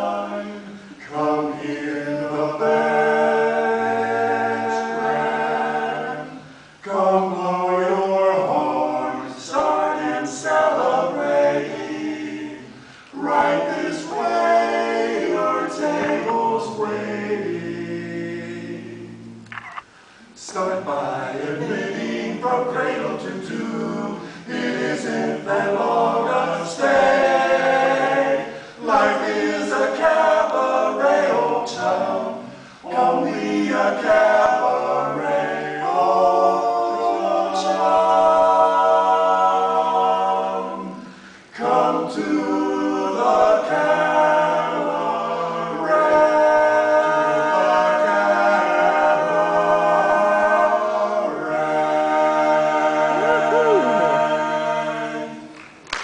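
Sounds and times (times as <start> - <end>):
male quartet singing a cappella: 0.0 - 19.5, 20.2 - 55.6
singer breath: 6.4 - 6.8, 12.7 - 13.1, 19.9 - 20.4, 28.5 - 28.8, 32.5 - 32.9, 41.0 - 41.5.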